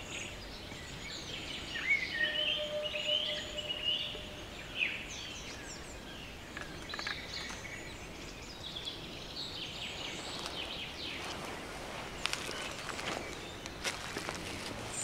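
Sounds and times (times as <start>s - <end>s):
songbirds chirping and trilling: 0.0s - 15.0s.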